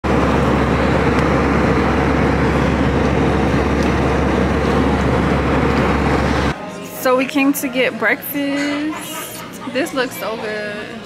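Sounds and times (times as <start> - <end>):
jet engines and rushing air: 0.0 - 6.6
low constant hum: 0.0 - 6.6.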